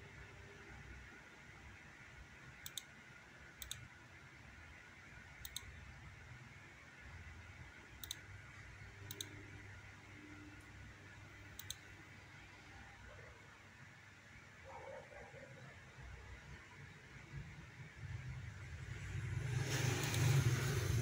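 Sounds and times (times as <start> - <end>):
faint low hum: 0.0 - 21.0
mouse button clicking: 8.0 - 8.2, 9.1 - 9.4, 11.6 - 11.9.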